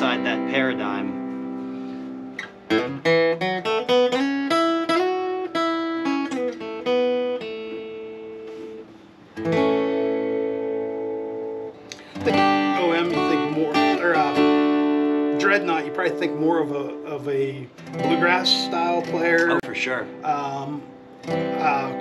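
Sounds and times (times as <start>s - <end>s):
acoustic guitar picked and strummed: 0.0s - 22.0s.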